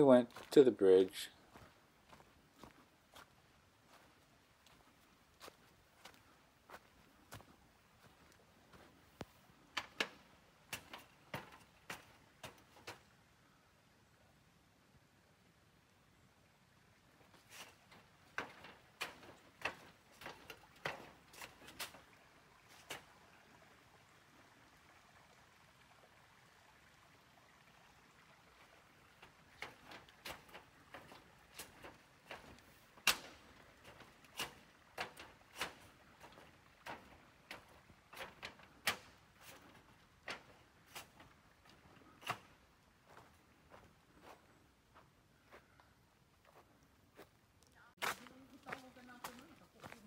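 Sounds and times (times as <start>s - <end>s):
footsteps walking: 0.2s - 13.1s, 17.3s - 23.1s, 29.1s - 45.8s, 46.4s - 50.0s.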